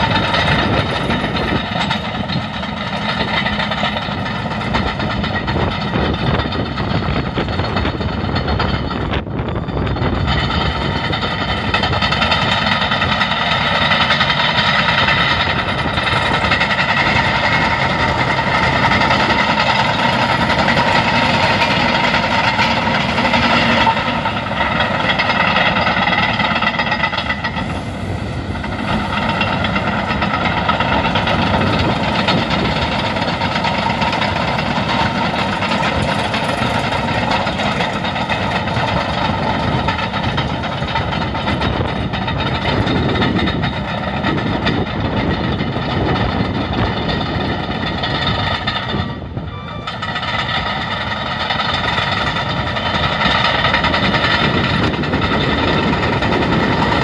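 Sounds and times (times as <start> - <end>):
bulldozer diesel engine running: 0.0 - 57.0
steel tracks clattering: 0.0 - 57.0.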